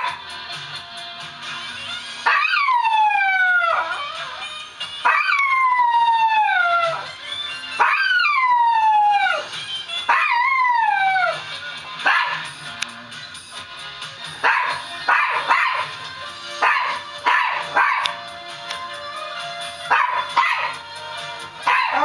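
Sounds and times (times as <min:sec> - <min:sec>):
tv theme music: 0:00.0 - 0:22.0
small dog howling: 0:02.3 - 0:04.4, 0:05.0 - 0:07.1, 0:07.8 - 0:09.5, 0:10.1 - 0:11.4, 0:21.6 - 0:22.0.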